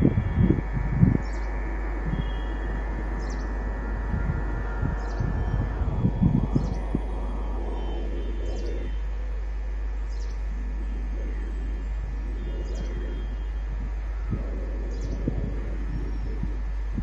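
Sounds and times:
birds chirping: 0:00.2 - 0:17.0.

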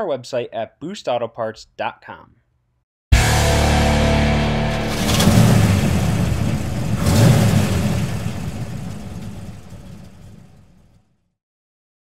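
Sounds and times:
vehicle engine revving: 0:03.2 - 0:10.8.

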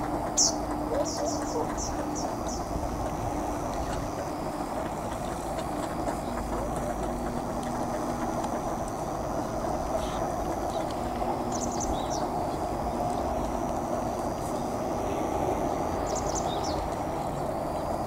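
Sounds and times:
outdoor background noise: 0:00.0 - 0:18.0.

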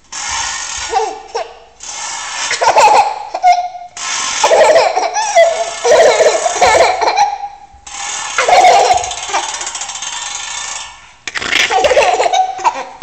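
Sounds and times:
toddler laughing: 0:00.9 - 0:01.7, 0:02.5 - 0:07.6, 0:08.4 - 0:09.7, 0:11.5 - 0:13.0.

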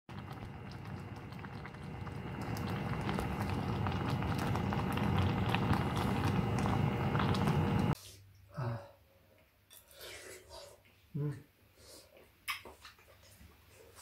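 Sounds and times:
stew bubbling at a boil: 0:00.1 - 0:08.0
faint steady hum: 0:00.1 - 0:12.3.

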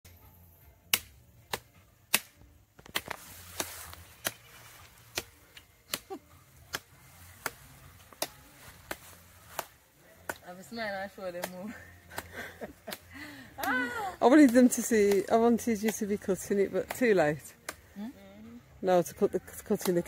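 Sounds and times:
knife chopping sugar cane: 0:00.9 - 0:04.5, 0:05.1 - 0:07.6, 0:11.4 - 0:13.8.

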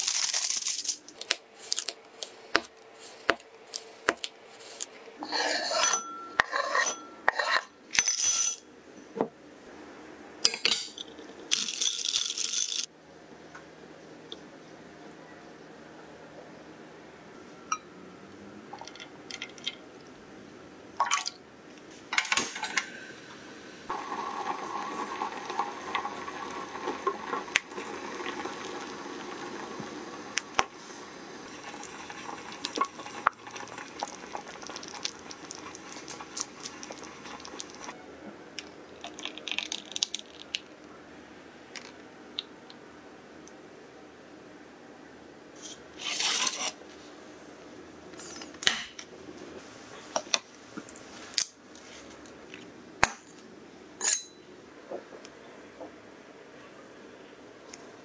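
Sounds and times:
spatula scraping glass bowl: 0:05.2 - 0:08.6
liquid pouring and stirring: 0:23.9 - 0:38.0, 0:39.0 - 0:40.7.

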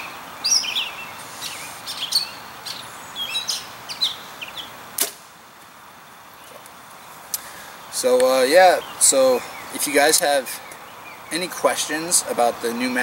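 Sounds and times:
birds chirping: 0:00.0 - 0:05.0, 0:05.6 - 0:13.0
bowstring snap: 0:05.0 - 0:05.3.

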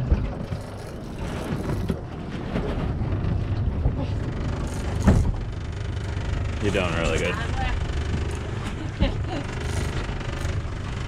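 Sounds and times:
boat engine rumble: 0:00.0 - 0:11.0.

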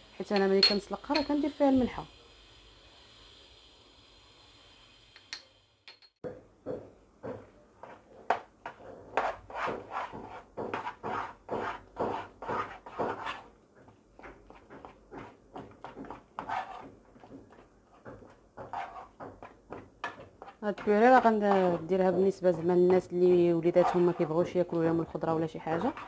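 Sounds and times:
wooden spoon stirring mashed potatoes: 0:07.2 - 0:26.0.

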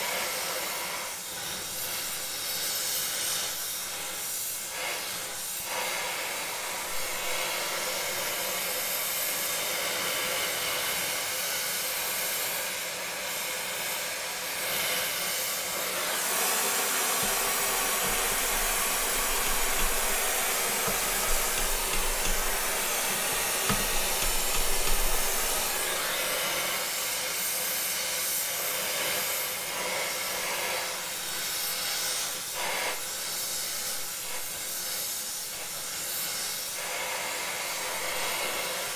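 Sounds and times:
torch flame hissing: 0:00.0 - 0:38.9
light knocks: 0:17.2 - 0:25.9.

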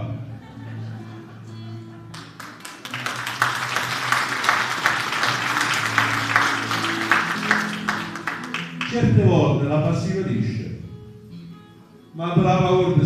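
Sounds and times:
soft background music: 0:00.0 - 0:13.0
audience applauding: 0:02.1 - 0:09.1.

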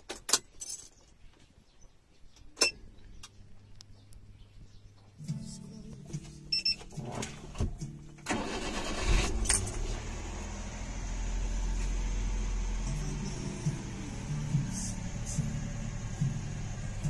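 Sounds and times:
car engine cranking and idling: 0:05.8 - 0:17.0.

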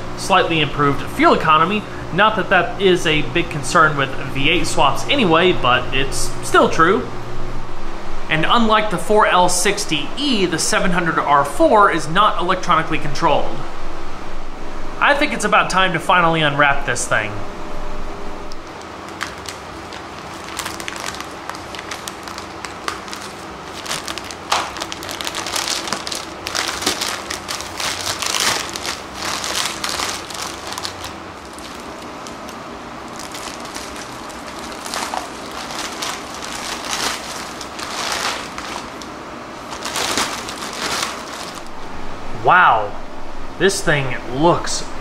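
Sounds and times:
plastic bag crinkling: 0:18.7 - 0:41.7.

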